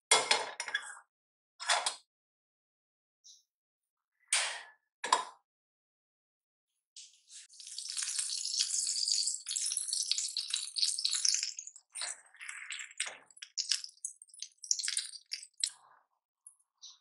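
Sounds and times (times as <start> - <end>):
butter sizzling in a pan: 7.3 - 15.7.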